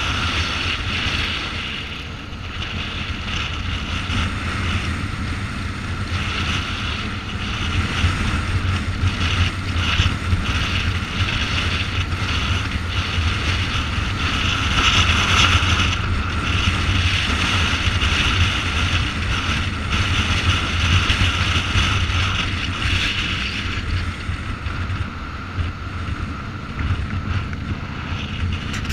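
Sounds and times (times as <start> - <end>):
motorcycle engine rumble: 0.0 - 28.9
wind rush on microphone: 0.0 - 28.9.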